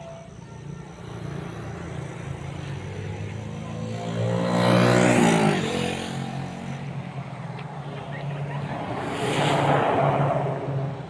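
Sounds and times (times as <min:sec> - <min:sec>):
vehicle passing by: 0:02.6 - 0:11.0.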